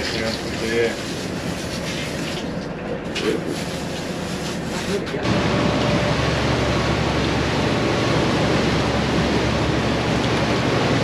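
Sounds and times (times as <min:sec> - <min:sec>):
boat engine drone: 0:00.0 - 0:11.0
water rushing: 0:04.6 - 0:11.0.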